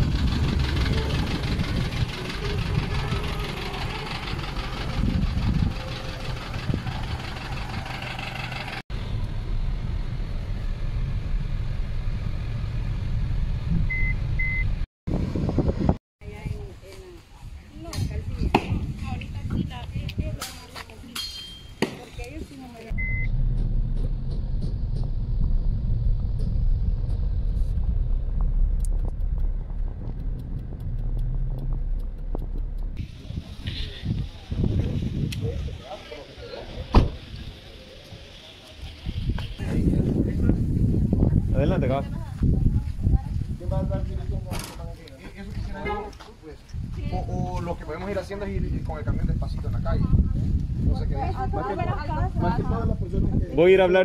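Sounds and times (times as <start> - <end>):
truck engine idling: 0.0 - 14.7, 22.9 - 40.0
car driving drone: 0.0 - 14.8, 22.9 - 40.9
low rumble inside car cabin: 22.9 - 33.5
short high beeps: 23.0 - 23.3.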